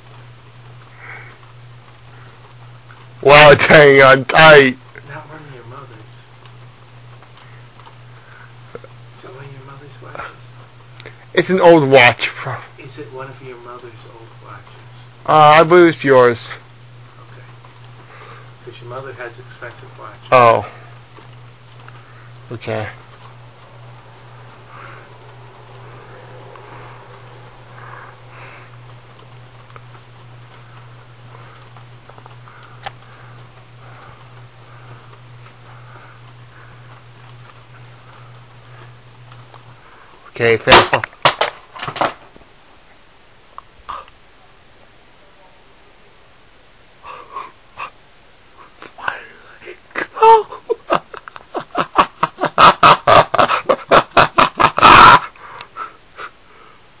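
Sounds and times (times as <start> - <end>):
ceiling fan humming: 0.0 - 57.0
person laughing wheezily: 48.6 - 56.4.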